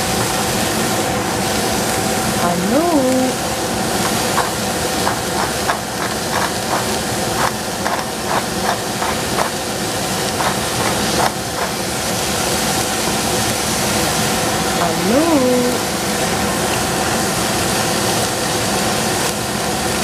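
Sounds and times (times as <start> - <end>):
onions sizzling in a pot: 0.0 - 14.8, 15.6 - 20.0
pepper mill grinding clicks: 4.0 - 9.6, 10.3 - 11.8.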